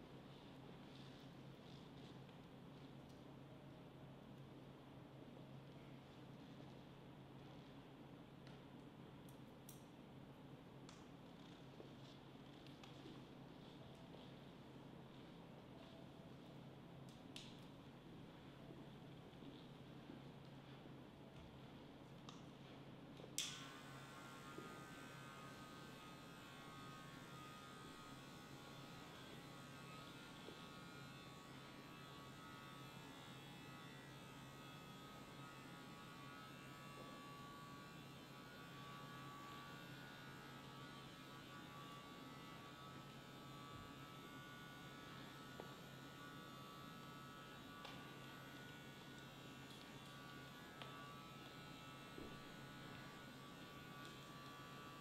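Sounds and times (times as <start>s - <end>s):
electric hair trimmer buzzing: 23.4s - 55.0s.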